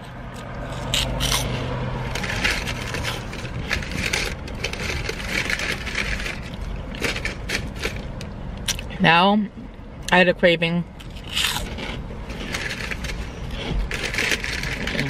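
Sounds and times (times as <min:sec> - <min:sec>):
paper bag rustling: 0:02.1 - 0:08.1, 0:12.3 - 0:15.0.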